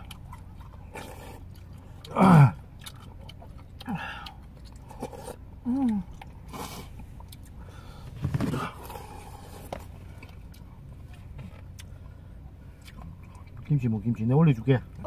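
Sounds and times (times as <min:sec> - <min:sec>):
people slurping soup: 0:03.8 - 0:07.0
person humming: 0:05.6 - 0:06.1.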